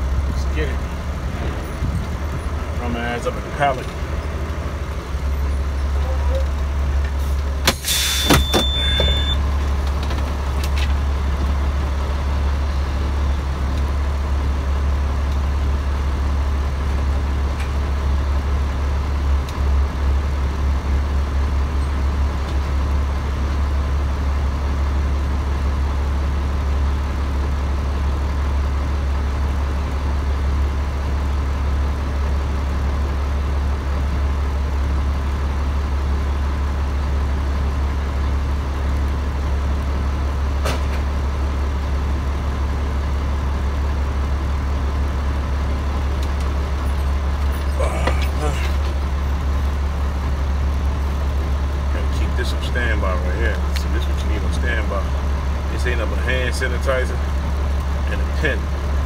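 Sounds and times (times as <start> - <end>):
truck diesel engine drone: 0.0 - 59.0
brief high tone: 8.2 - 9.4.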